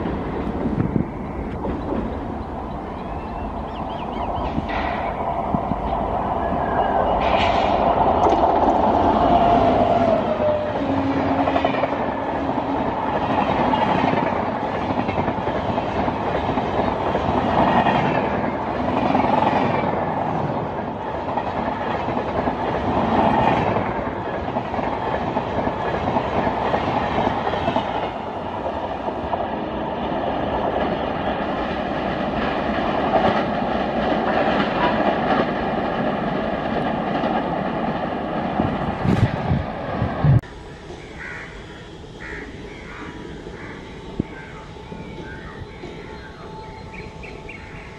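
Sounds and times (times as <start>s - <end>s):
wheels clickety-clack on rail joints: 0.0s - 40.4s
train wheels rushing on rails: 0.0s - 47.9s
steady high whine: 38.1s - 47.9s.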